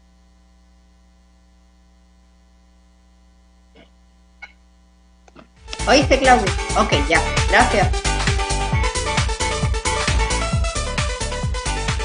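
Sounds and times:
low electrical mains hum: 0.0s - 8.9s.

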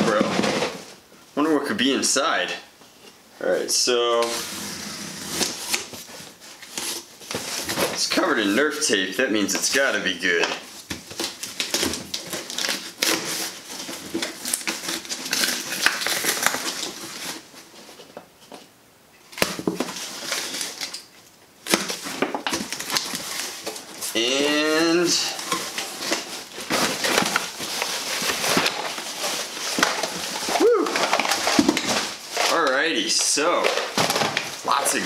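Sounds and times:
packing tape ripping off cardboard: 4.3s - 8.3s, 10.8s - 17.5s, 19.3s - 35.0s
person making rising vocal sound: 30.6s - 31.0s.

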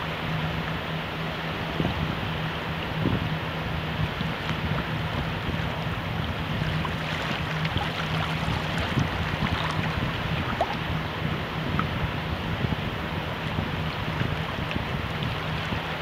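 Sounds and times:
water lapping: 0.0s - 16.0s
wind rumbling on microphone: 0.0s - 16.0s
water trickling: 4.0s - 16.0s.

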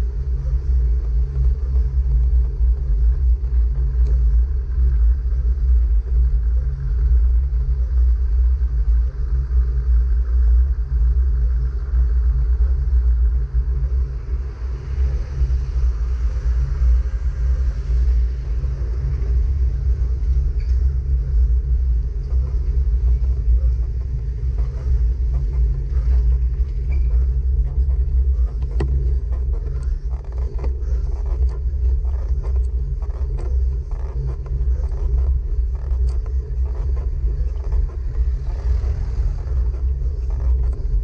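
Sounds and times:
wind and road rumble on microphone: 0.0s - 41.0s
light clicks and rattles: 19.0s - 41.0s.

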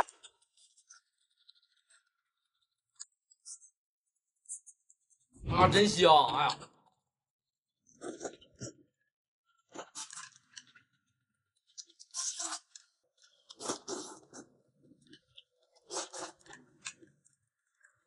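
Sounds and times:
person chewing noodles noisily: 11.7s - 18.0s.

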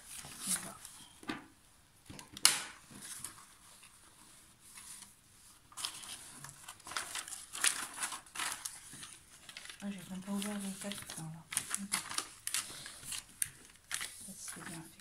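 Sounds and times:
plastic cover sheet crinkling: 0.0s - 1.1s, 2.2s - 15.0s.

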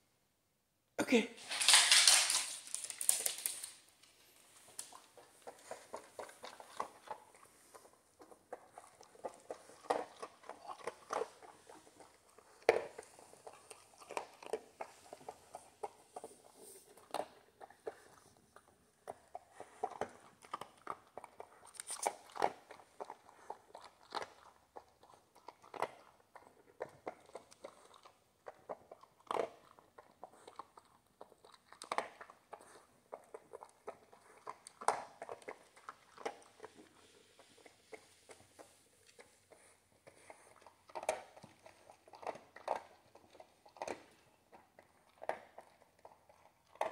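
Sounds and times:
dog crunching dry kibble: 1.4s - 46.9s.

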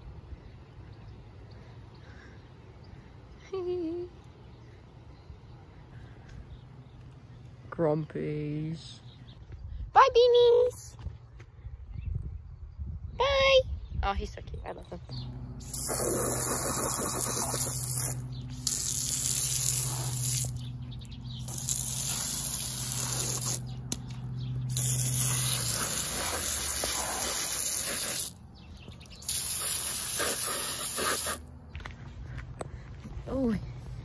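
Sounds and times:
hose nozzle spraying water: 15.6s - 24.1s, 24.7s - 28.4s, 29.0s - 31.4s.

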